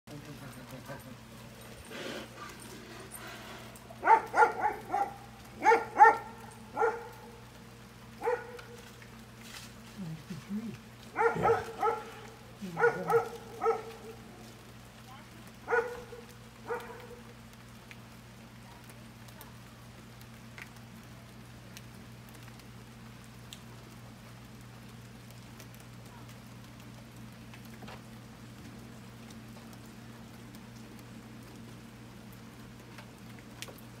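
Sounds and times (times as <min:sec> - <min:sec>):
steady low hum: 0:00.1 - 0:18.5
dog barking: 0:04.0 - 0:07.4, 0:08.2 - 0:08.8, 0:11.1 - 0:14.3, 0:15.6 - 0:17.3.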